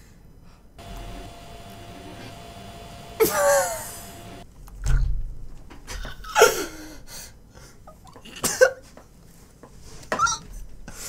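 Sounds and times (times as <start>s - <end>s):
man laughing breathlessly: 3.2s - 4.0s.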